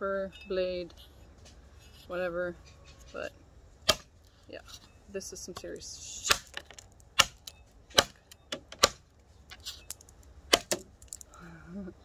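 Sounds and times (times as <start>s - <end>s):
blade chopping wooden log: 3.8s - 4.1s, 6.2s - 9.0s, 10.5s - 10.9s.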